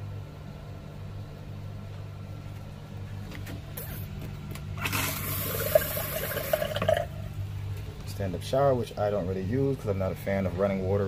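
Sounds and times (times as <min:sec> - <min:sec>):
steady low hum: 0:00.0 - 0:11.0
water rushing in plumbing: 0:04.8 - 0:07.4.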